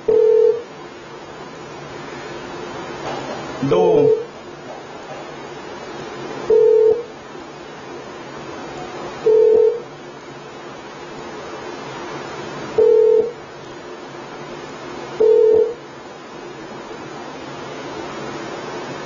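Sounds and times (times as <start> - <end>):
steady hiss: 9.9 - 19.0.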